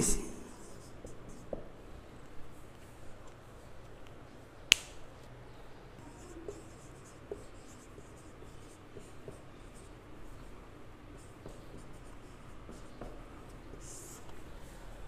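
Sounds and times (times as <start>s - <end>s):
sharp click: 4.7s - 5.0s
marker squeaking on whiteboard: 6.0s - 14.4s.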